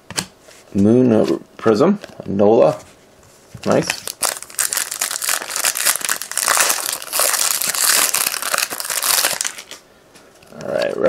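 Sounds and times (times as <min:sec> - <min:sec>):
foil wrapper crinkling: 0:03.7 - 0:09.8.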